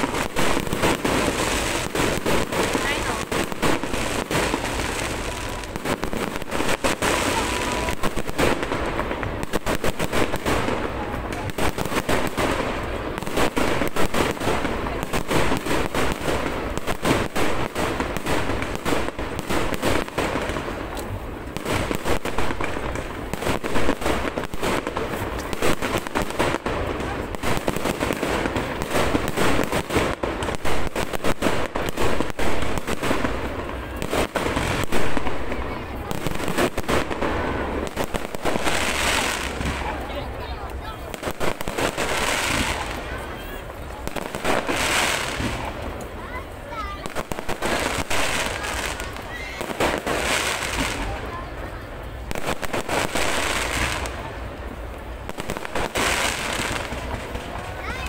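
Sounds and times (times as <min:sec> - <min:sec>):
fireworks bursting and crackling: 0:00.0 - 0:58.0.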